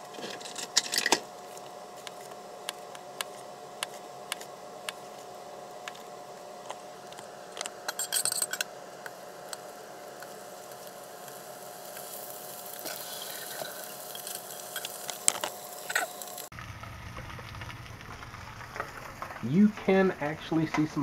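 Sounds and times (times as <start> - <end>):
utensils clattering: 0.0 - 1.3, 7.8 - 8.7, 12.8 - 16.5
meat sizzling in hot oil: 9.0 - 19.4.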